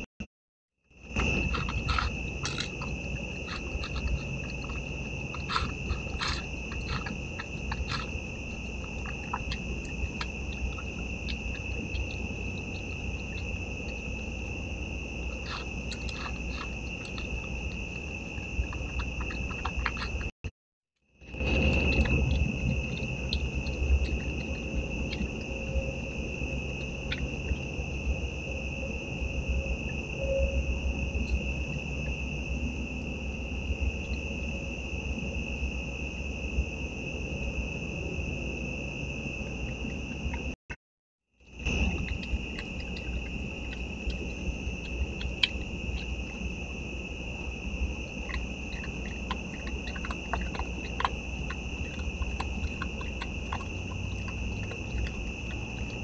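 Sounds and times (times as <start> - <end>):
night insects chorus: 0.9 - 20.4, 21.2 - 40.6, 41.4 - 56.0
opossum crunching dry food: 1.1 - 20.4, 21.2 - 28.3, 41.5 - 56.0.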